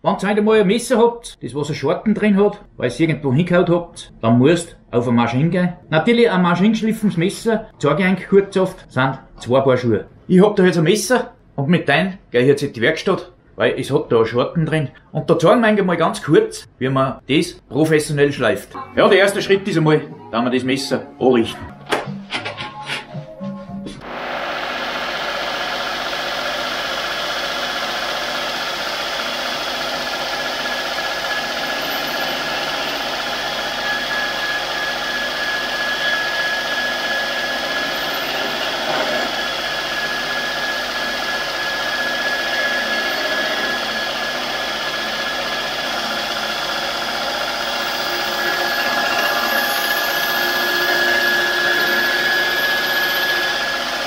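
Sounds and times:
belt grinder grinding knife blade: 24.8 - 54.0.

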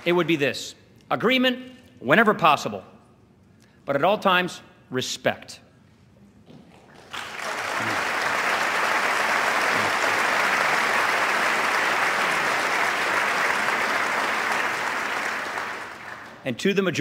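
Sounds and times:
large audience applauding: 0.0 - 0.4, 6.9 - 16.4.

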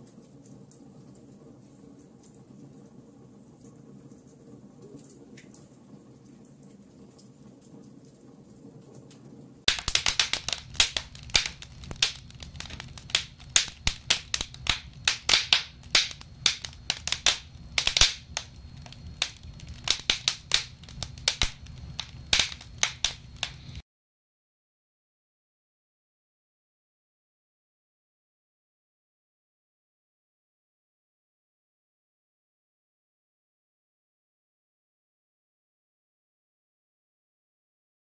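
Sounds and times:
wood fire crackling and popping: 0.0 - 23.8.

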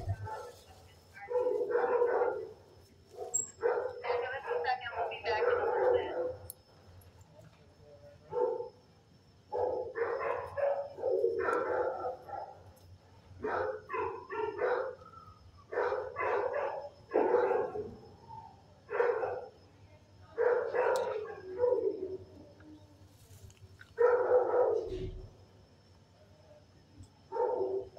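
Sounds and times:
dogs barking: 0.0 - 6.5, 8.3 - 8.8, 9.5 - 12.8, 13.4 - 19.6, 20.4 - 22.3, 24.0 - 25.2, 27.3 - 27.9.

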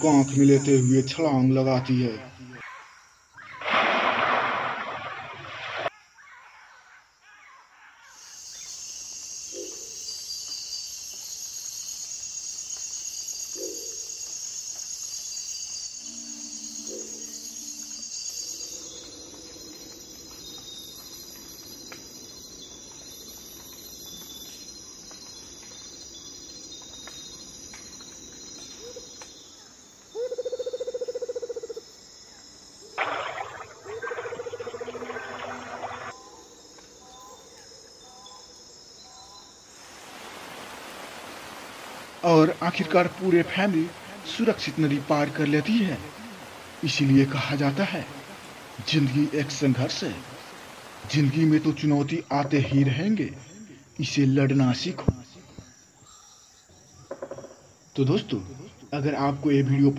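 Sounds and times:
high-pitched insect chorus: 0.0 - 5.1, 5.9 - 59.9
loud splash in river: 3.6 - 5.9, 33.0 - 36.2.

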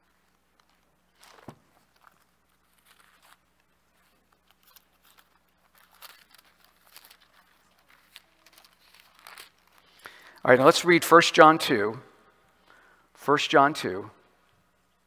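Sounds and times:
thin pages being turned: 0.0 - 10.1
low steady hum: 0.0 - 15.0.

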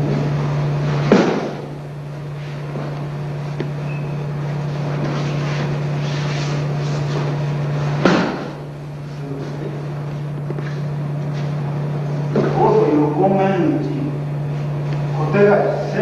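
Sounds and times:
videotape hum and hiss: 0.0 - 16.0
body slapping a mat: 1.0 - 1.7, 8.0 - 8.6.

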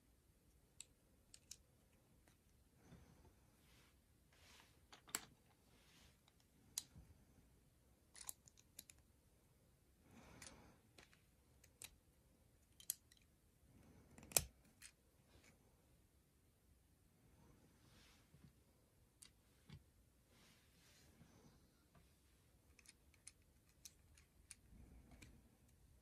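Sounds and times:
soft rustle of handling: 1.5 - 7.5, 17.4 - 26.0.

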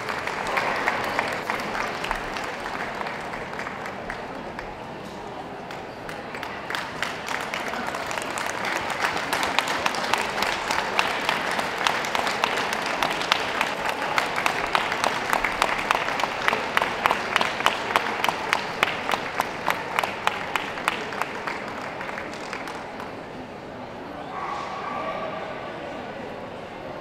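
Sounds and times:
audience applauding: 0.0 - 4.8, 5.6 - 23.4.

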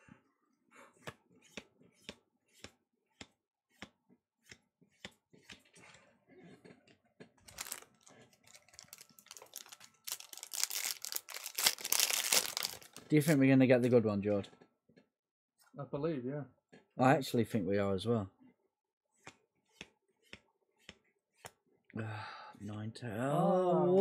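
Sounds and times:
foil wrapper crinkling: 7.5 - 13.4.

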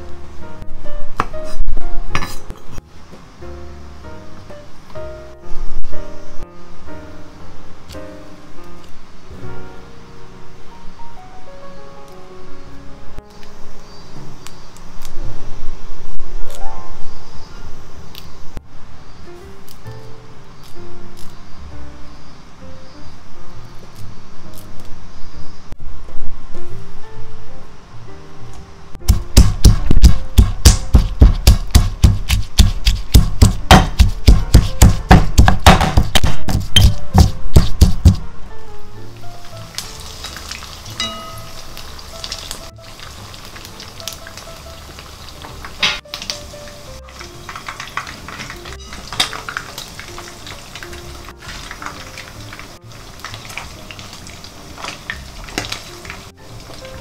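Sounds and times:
pestle pounding in stone mortar: 29.0 - 38.2
fish frying in hot oil: 39.5 - 57.0.

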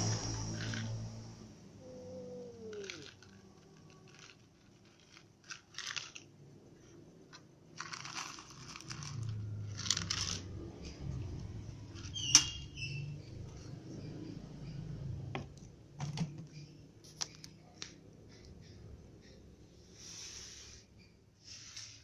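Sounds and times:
kibble rattling in plastic bottle: 2.6 - 6.3, 7.4 - 10.5
cat crunching kibble: 7.7 - 10.8.

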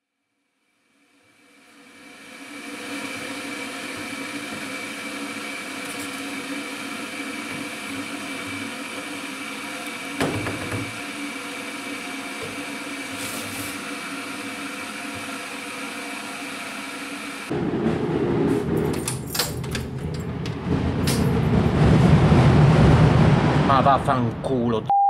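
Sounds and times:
kitchen appliance humming: 1.4 - 17.5
knock: 10.2 - 11.0.

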